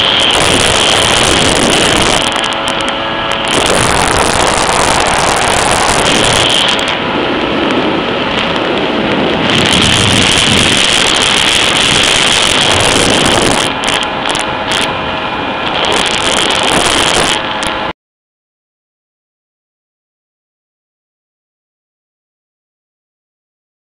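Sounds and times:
rush of wind and water: 0:00.0 - 0:17.9
jet ski engine at high speed: 0:00.0 - 0:18.0.

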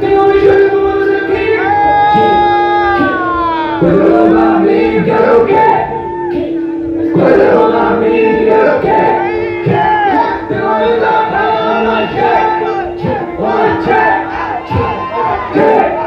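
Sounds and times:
rapping over a beat: 0:00.0 - 0:06.5, 0:07.1 - 0:16.0
crowd joining in: 0:05.7 - 0:16.0.

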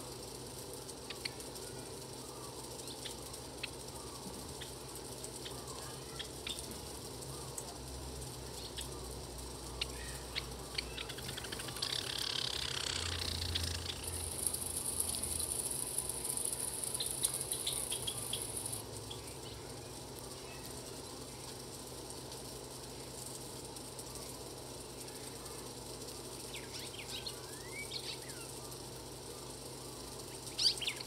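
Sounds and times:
high steady buzz: 0:00.0 - 0:31.0
small birds chipping: 0:00.0 - 0:31.0.

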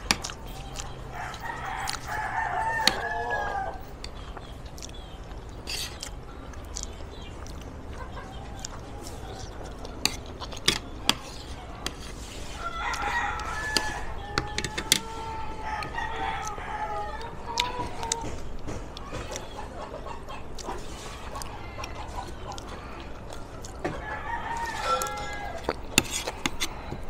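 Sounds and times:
rooster crowing: 0:01.1 - 0:03.9, 0:12.5 - 0:18.3, 0:23.9 - 0:25.8.

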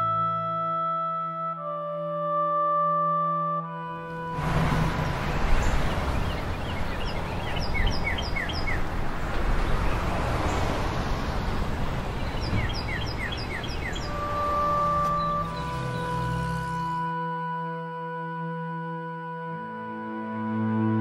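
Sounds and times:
outdoor rushing noise: 0:04.1 - 0:17.0
songbird chirping: 0:04.1 - 0:17.1.

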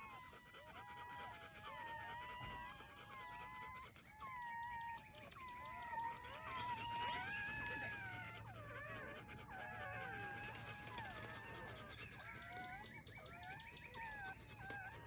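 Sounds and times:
puppies squeaking and whining: 0:00.0 - 0:15.0.

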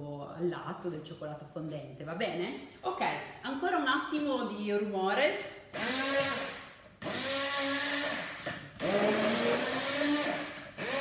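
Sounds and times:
hand blender motor whine: 0:05.8 - 0:11.0.

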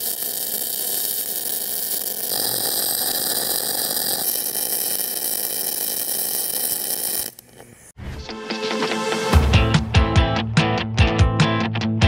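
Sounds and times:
welding arc crackling: 0:00.0 - 0:07.8.

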